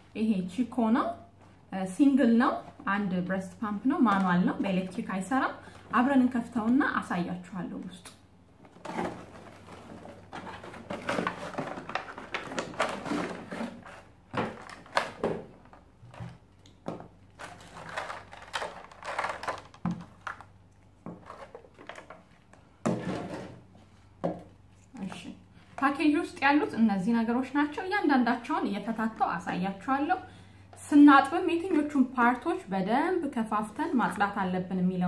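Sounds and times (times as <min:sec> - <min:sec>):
plastic bag rustling: 0:08.7 - 0:16.4, 0:17.3 - 0:22.2
plastic parts knocking: 0:08.7 - 0:22.2.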